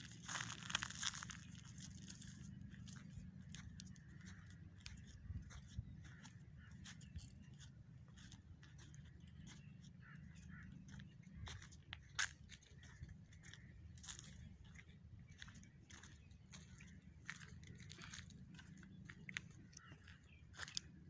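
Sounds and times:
dry leaves crunching underfoot: 0.0 - 21.0.

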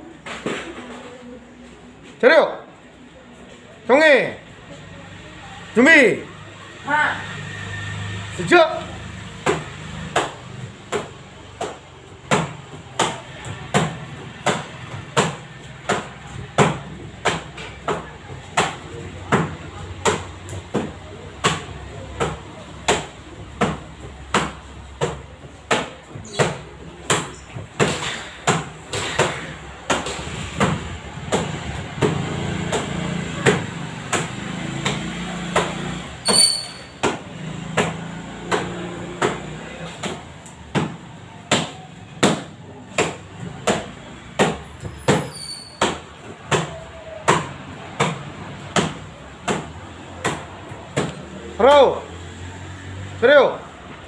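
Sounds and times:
bare feet slapping kick paddles: 9.3 - 36.0, 36.7 - 51.4.

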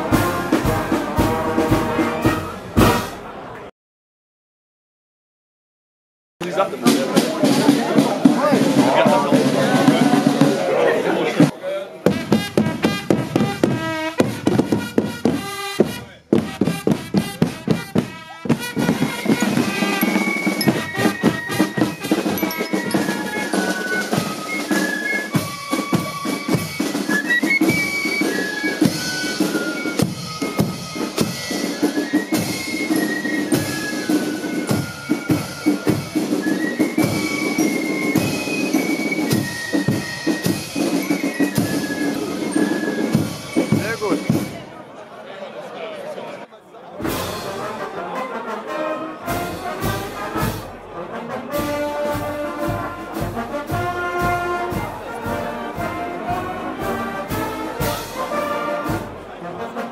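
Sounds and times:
marching band drum beat: 0.0 - 3.2, 6.5 - 44.7, 49.3 - 50.8, 51.4 - 59.7
high marching melody: 0.0 - 3.4, 6.4 - 44.7, 47.0 - 59.9.

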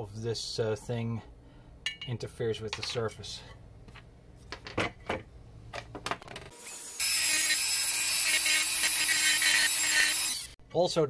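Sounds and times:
rotary tool grinding metal: 6.6 - 10.6.

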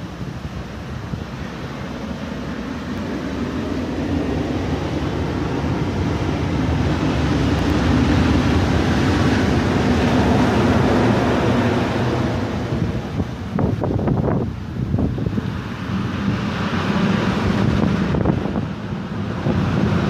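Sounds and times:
ocean surf: 0.0 - 20.0
wind buffeting microphone: 0.0 - 20.0.

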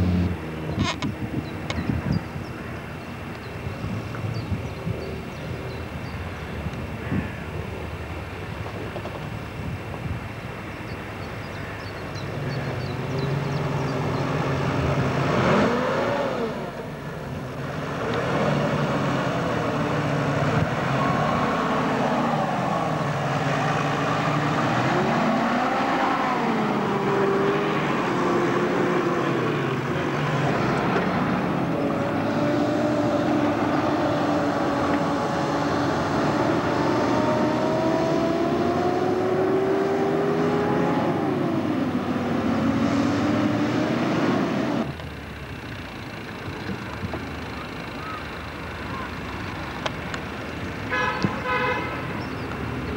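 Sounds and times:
off-road engines revving: 0.0 - 3.6, 11.5 - 52.9.

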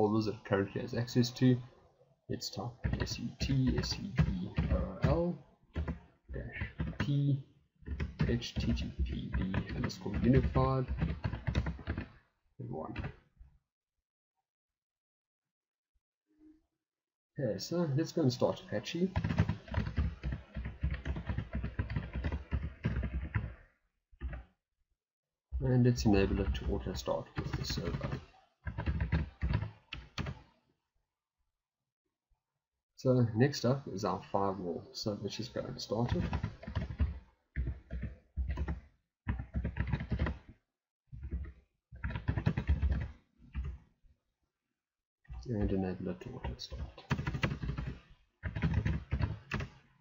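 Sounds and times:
fast typing on a keyboard: 2.6 - 12.2, 19.1 - 23.6, 24.2 - 24.4, 26.1 - 30.4, 35.5 - 40.5, 41.2 - 43.8, 46.3 - 49.8.

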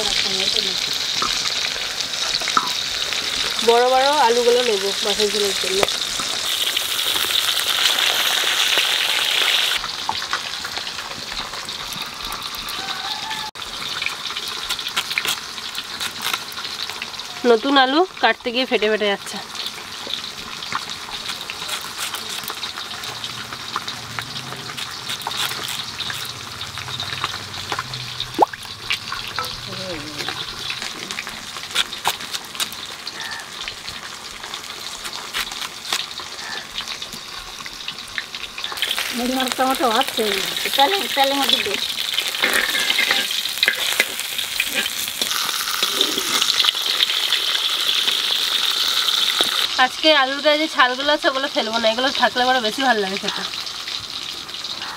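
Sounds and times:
fish sizzling in hot oil: 0.0 - 54.9
potatoes crunching on a blade: 14.6 - 16.5, 20.8 - 22.7, 24.4 - 26.4, 31.2 - 33.3, 34.8 - 36.6.

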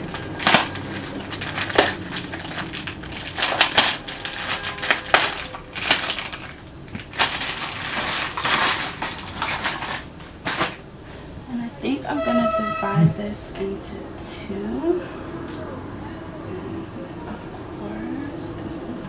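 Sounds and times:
plastic bag crinkling: 0.0 - 10.8.

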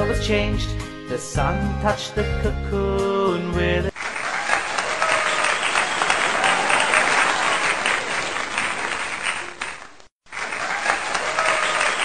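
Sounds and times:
crowd applauding: 3.9 - 12.0.

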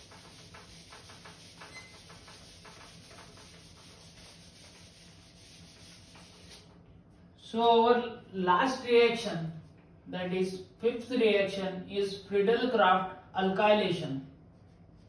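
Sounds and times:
duster wiping whiteboard: 0.0 - 6.8.

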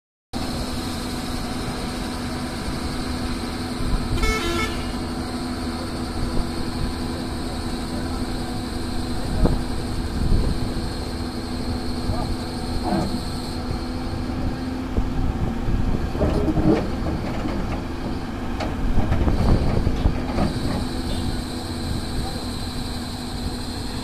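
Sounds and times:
excavator diesel engine running: 0.4 - 24.0
vehicle horn: 4.1 - 5.1, 20.6 - 21.4.

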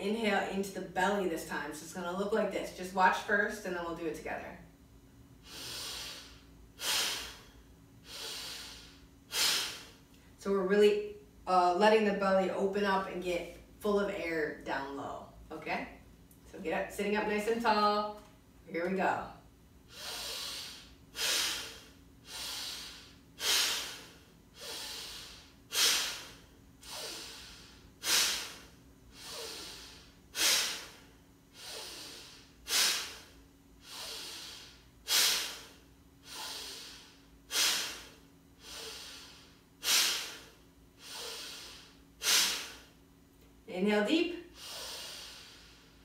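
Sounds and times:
woman breathing rhythmically: 5.2 - 10.4, 19.8 - 43.1, 44.3 - 46.0.

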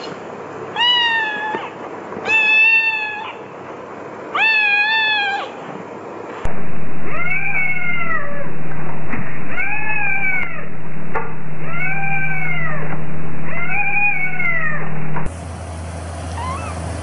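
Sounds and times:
steady low hum: 0.0 - 17.0
kitten meowing: 0.8 - 3.4, 4.4 - 5.6, 7.1 - 8.4, 9.5 - 10.7, 11.6 - 12.9, 13.5 - 14.8, 16.4 - 16.8.

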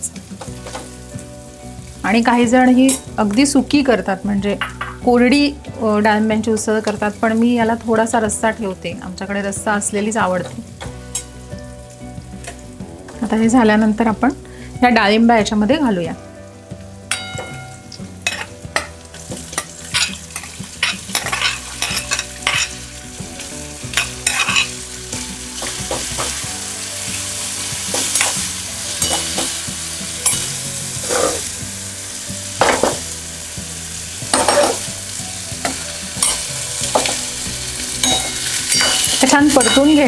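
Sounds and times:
beans sizzling in hot oil: 0.0 - 40.0
metal spoon scraping pan: 19.6 - 22.8, 24.0 - 24.7, 30.2 - 31.5, 38.0 - 40.0.

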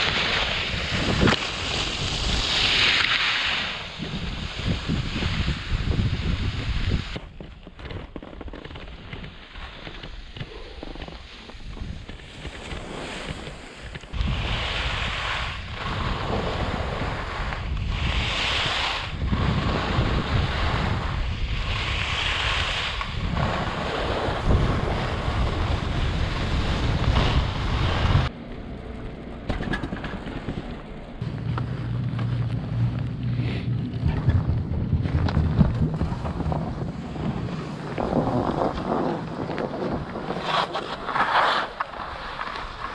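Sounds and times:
skis scraping on snow: 0.0 - 28.3, 31.2 - 42.9
wind over microphone: 0.0 - 28.5, 29.7 - 42.9
low steady hum: 28.0 - 38.4.

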